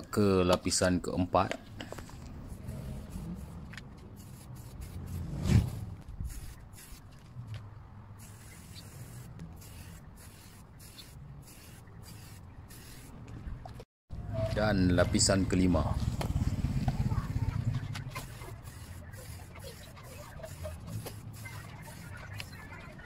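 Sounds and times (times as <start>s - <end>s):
aerosol can spraying: 2.4s - 5.3s, 6.3s - 7.0s, 8.2s - 13.1s, 18.1s - 23.0s.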